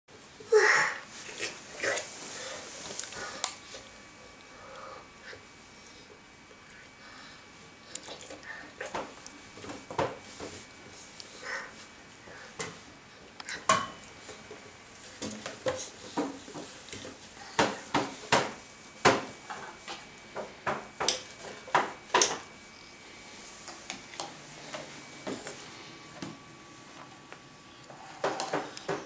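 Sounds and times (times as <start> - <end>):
taps and knocks on plastic chair: 17.6 - 19.3.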